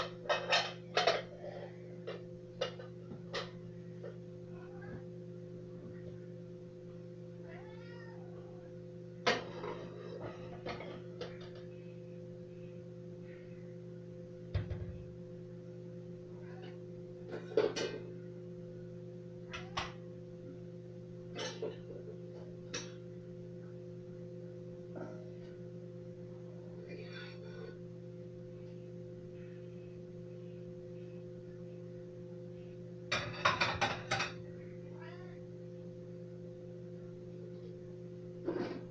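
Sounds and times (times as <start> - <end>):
dishes and utensils clattering: 0.0 - 1.4, 9.2 - 11.7, 17.3 - 18.1, 21.3 - 22.0, 33.1 - 34.5
steady hum: 0.0 - 38.9
cat meowing: 7.4 - 8.5.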